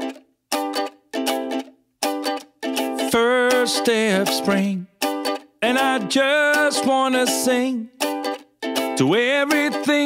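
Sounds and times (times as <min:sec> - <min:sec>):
person singing: 0:00.0 - 0:00.2, 0:02.8 - 0:10.0
ukulele pop song: 0:00.0 - 0:10.0.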